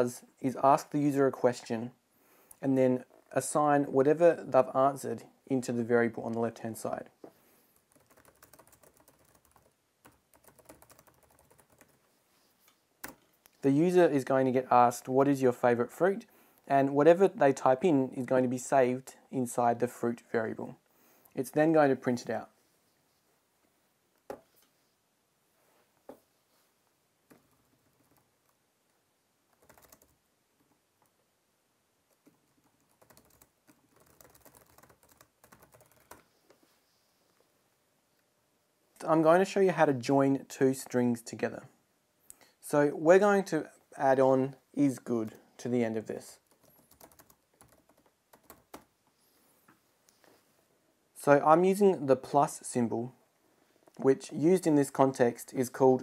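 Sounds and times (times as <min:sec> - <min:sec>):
faint typing on a keyboard: 0:07.2 - 0:13.7, 0:27.2 - 0:31.3, 0:32.0 - 0:37.5, 0:46.2 - 0:50.4.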